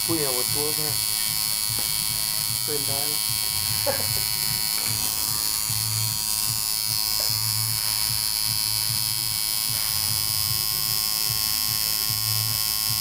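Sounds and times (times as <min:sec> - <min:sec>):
tattoo machine buzzing: 0:00.0 - 0:13.0.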